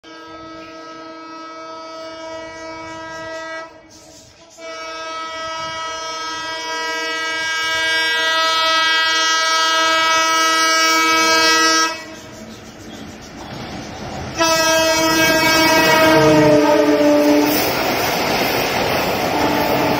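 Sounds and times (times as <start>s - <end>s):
locomotive air horn: 0.0s - 3.9s, 4.5s - 12.2s, 14.4s - 17.8s.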